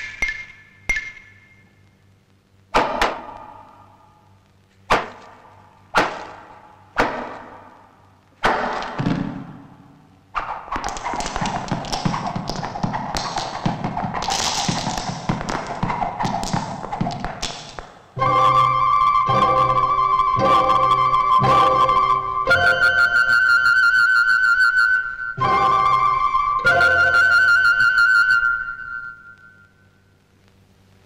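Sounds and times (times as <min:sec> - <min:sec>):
cartoon sharp knocks: 0:02.8 - 0:03.6, 0:04.9 - 0:05.4, 0:06.0 - 0:07.7, 0:10.4 - 0:18.0.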